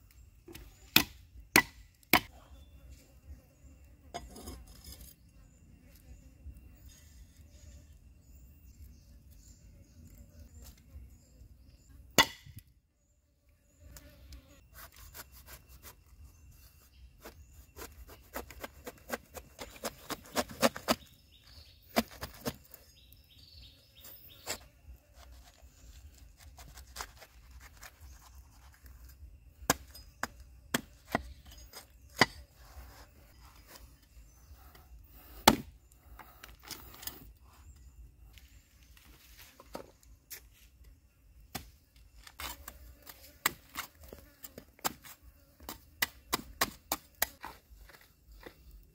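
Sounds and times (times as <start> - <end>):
cleaver chopping into wood: 0.9 - 2.3, 12.2 - 12.6, 35.4 - 35.7.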